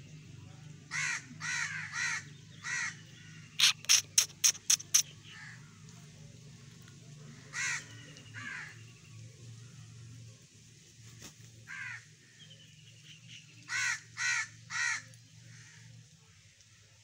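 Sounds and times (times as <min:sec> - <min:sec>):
harsh bird calls: 0:00.9 - 0:05.7, 0:07.4 - 0:09.1
sharp loud snaps: 0:03.6 - 0:05.1.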